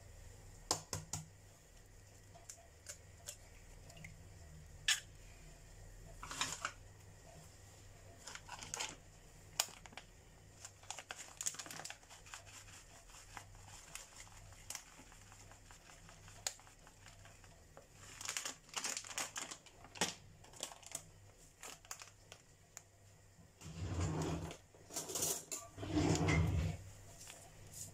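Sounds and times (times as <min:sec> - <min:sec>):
plastic packet crinkling: 0:08.2 - 0:22.5.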